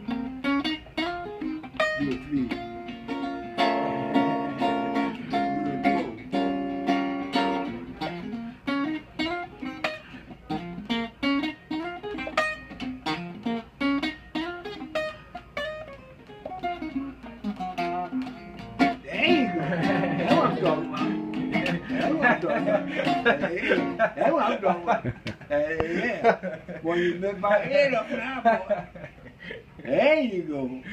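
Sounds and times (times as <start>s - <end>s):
archtop guitar being picked: 0.0s - 26.0s.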